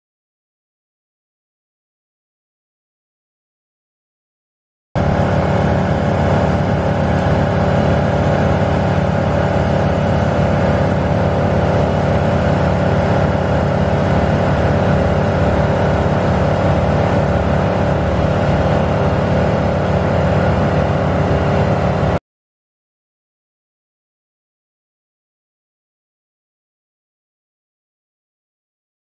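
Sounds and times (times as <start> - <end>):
truck engine running steadily: 5.0 - 22.2.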